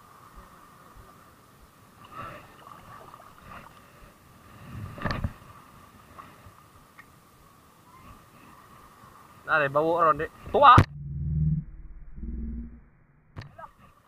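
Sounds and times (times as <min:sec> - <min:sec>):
low wind: 0:00.0 - 0:14.0
water noise: 0:00.0 - 0:14.0.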